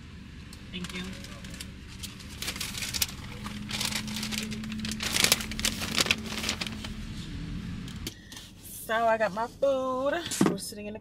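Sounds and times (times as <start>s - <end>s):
paper bag crinkling: 0.8s - 7.1s.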